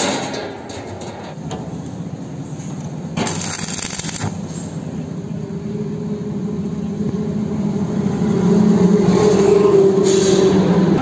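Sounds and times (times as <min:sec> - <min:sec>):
arc welder crackling hiss: 0:03.2 - 0:04.7.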